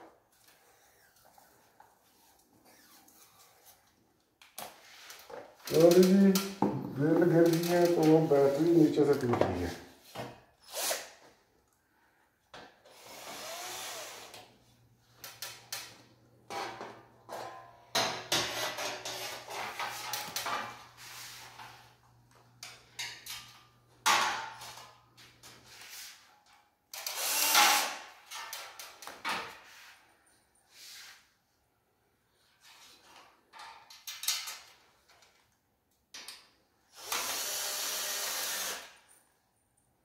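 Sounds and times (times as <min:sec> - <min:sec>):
cordless drill driving into steel: 0:12.9 - 0:14.4, 0:27.0 - 0:28.0, 0:36.9 - 0:39.0.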